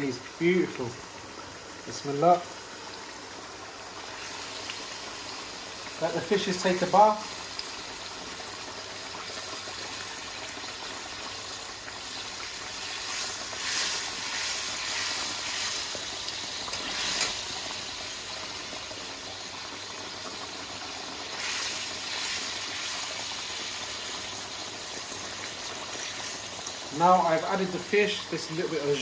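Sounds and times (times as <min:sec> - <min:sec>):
sauce sizzling and bubbling in pan: 0:00.0 - 0:29.0.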